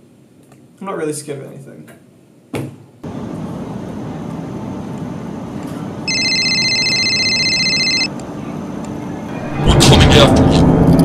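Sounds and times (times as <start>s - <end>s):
phone ringing with trilling ring: 6.1s - 8.1s.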